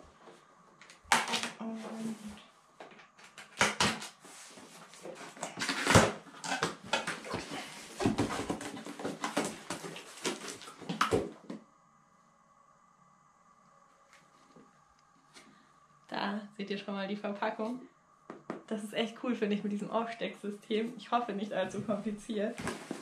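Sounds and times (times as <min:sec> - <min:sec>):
tape ripping: 0:01.1 - 0:01.6
packaging rustling: 0:04.7 - 0:11.2.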